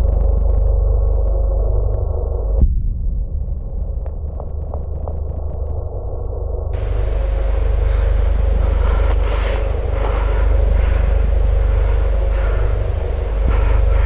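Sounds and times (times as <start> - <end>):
loud low rumble: 0.0 - 14.0
faint hiss: 6.8 - 14.0.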